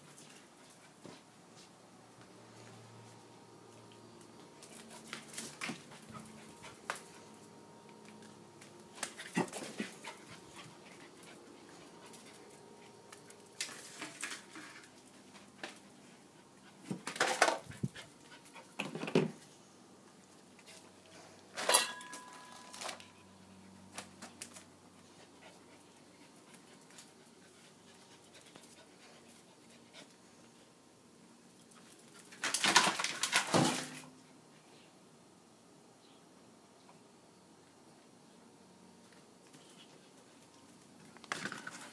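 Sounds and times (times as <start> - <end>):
puppy paws clicking and scuffling: 3.7 - 19.0, 23.9 - 30.2.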